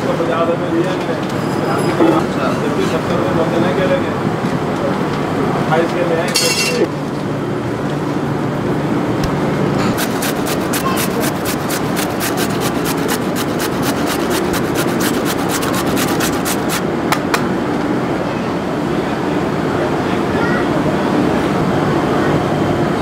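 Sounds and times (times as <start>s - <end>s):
steady background noise: 0.0s - 23.0s
carrot grating strokes: 10.0s - 16.8s.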